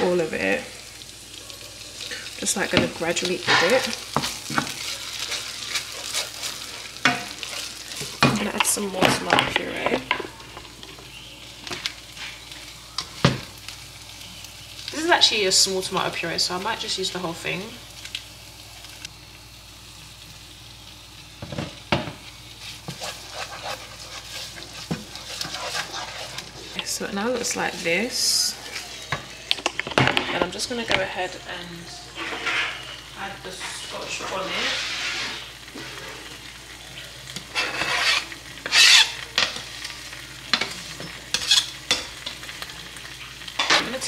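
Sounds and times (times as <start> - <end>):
tomato and onions sizzling in pan: 0.0 - 44.0
spoon scraping pan: 2.0 - 11.0, 22.6 - 28.0, 32.1 - 35.5, 37.4 - 39.6, 40.5 - 42.4
knife scraping chopping board: 22.9 - 24.6, 25.3 - 26.5, 37.6 - 39.1.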